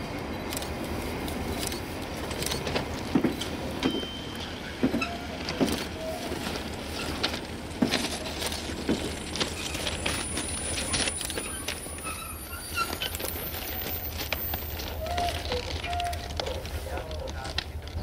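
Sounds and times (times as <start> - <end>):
diesel locomotive rumble: 0.0 - 18.0
train wheels clanking on track: 0.2 - 18.0
brief squeaks: 9.6 - 16.3.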